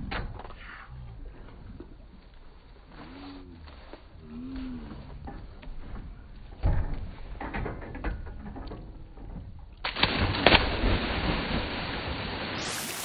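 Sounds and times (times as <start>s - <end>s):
water splashing: 9.8s - 13.0s.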